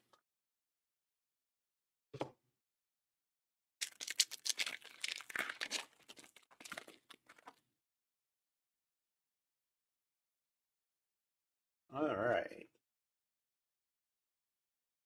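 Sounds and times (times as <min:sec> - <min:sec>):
plastic wrapper crinkling and tearing: 0:03.8 - 0:07.6.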